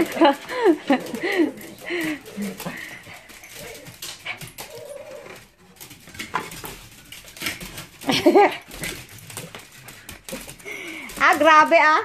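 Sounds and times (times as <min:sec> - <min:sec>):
dogs whining: 0:00.0 - 0:05.6.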